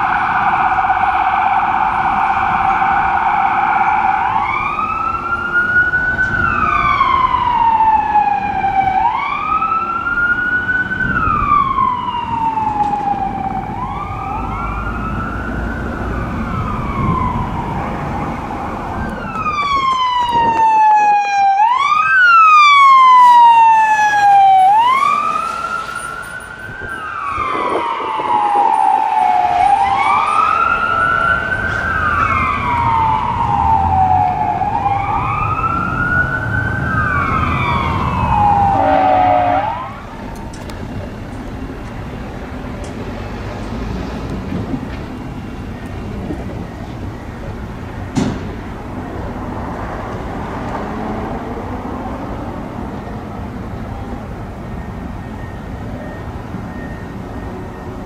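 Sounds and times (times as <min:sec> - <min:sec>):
truck engine rumble: 0:00.0 - 0:21.2, 0:21.9 - 0:58.0
fire engine siren wailing: 0:00.0 - 0:58.0
traffic rumble: 0:00.0 - 0:58.0.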